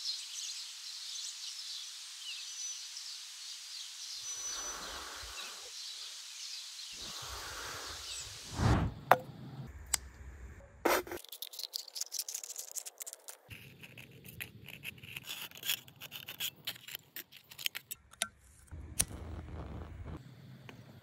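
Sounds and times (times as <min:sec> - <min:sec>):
knife cutting metal can: 0:10.9 - 0:18.3.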